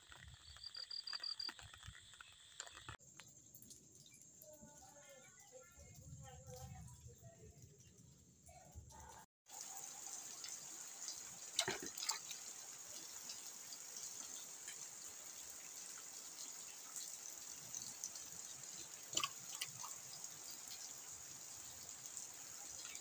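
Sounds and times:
fish splashing in bucket: 11.6 - 12.3, 19.1 - 19.9.

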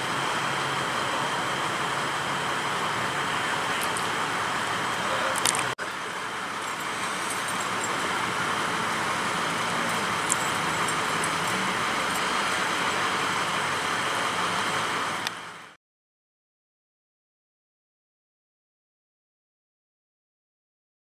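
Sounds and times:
road traffic hiss: 0.0 - 15.8.

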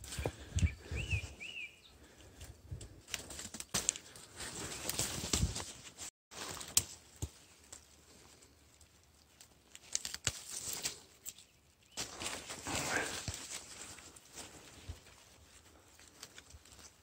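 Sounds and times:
dry leaves and twigs rustling: 0.0 - 17.0
twigs snapping: 2.2 - 5.8, 6.4 - 14.5, 15.7 - 17.0.

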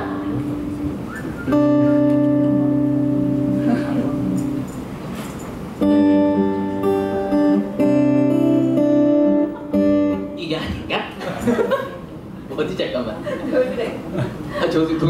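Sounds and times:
acoustic guitar chords: 0.0 - 10.5.

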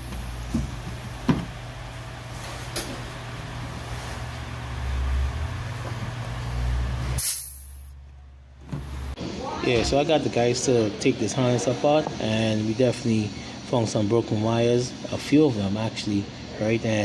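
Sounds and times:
low mechanical hum: 0.0 - 17.0
short bright hiss: 7.2 - 7.9.

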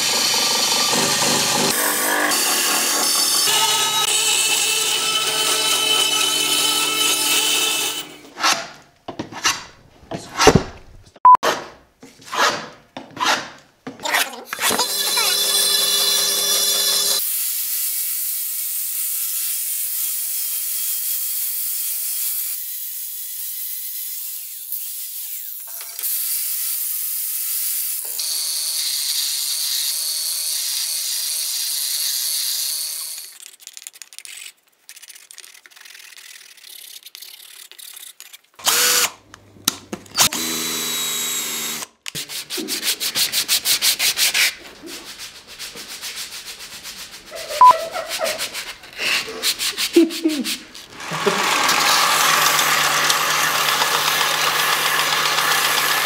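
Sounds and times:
bandsaw cutting wood: 0.0 - 8.8, 14.1 - 33.4, 38.6 - 39.2, 40.2 - 43.1, 50.8 - 56.0
rubbing strokes on wood: 42.2 - 51.4
belt sander grinding: 50.8 - 56.0.

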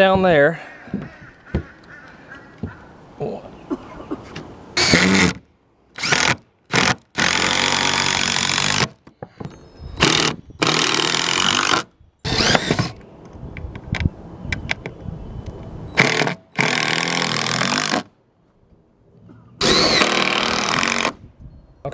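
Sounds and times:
impact driver driving screws: 4.8 - 5.4, 6.0 - 9.0, 10.0 - 13.0, 16.0 - 18.1, 19.6 - 21.2.

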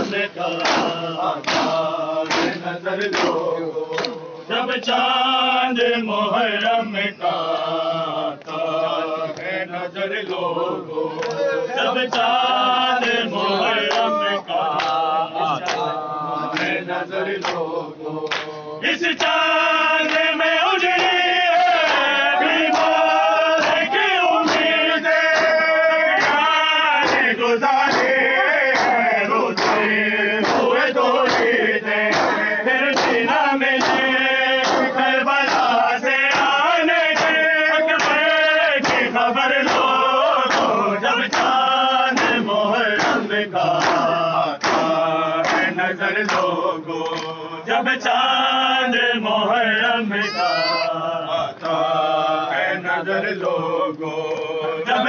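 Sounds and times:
men chanting together: 0.0 - 55.0
hands slapping chests: 0.6 - 4.2, 11.2 - 11.4, 13.8 - 15.0, 15.6 - 15.8, 17.4 - 18.6, 21.8 - 23.0, 23.6 - 25.6, 26.2 - 33.2, 33.8 - 37.4, 38.0 - 42.4, 43.0 - 47.4.

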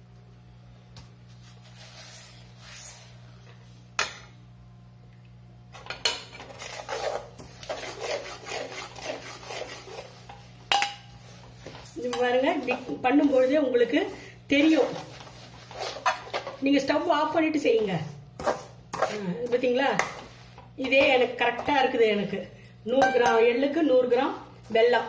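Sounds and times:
steel spoon scraping metal pan: 6.6 - 10.1.

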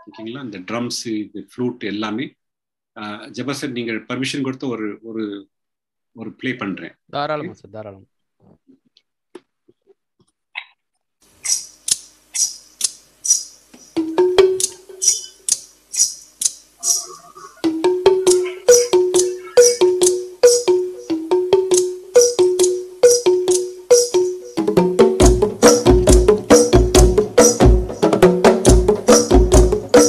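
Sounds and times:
bamboo percussion strokes: 11.4 - 30.0.

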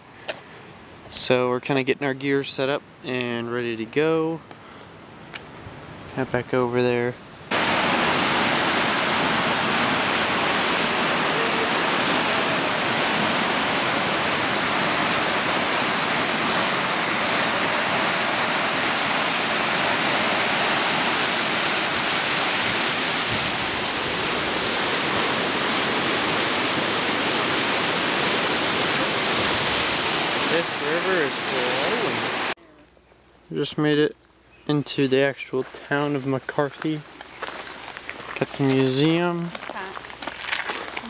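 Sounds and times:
river rushing: 7.5 - 32.6.

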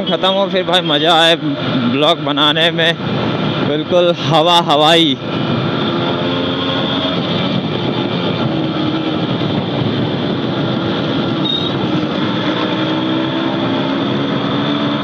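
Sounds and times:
road noise: 0.0 - 15.0
wind rush: 2.6 - 15.0
motorcycle engine running: 5.2 - 14.4.

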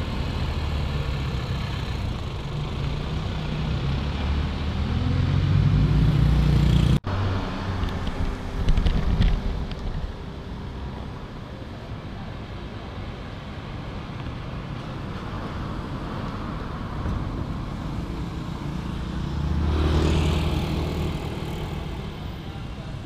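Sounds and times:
vehicle passing by: 0.0 - 8.6, 17.6 - 22.4.

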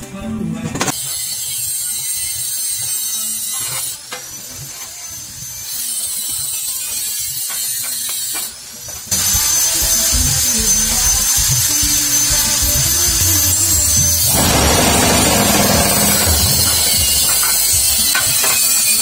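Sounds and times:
vibrator motor rattling steel frame: 11.8 - 18.9.

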